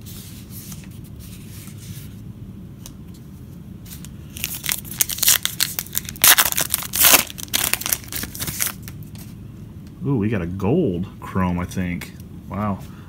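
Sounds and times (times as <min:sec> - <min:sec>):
foil wrapper crinkling and tearing: 0:04.0 - 0:09.1.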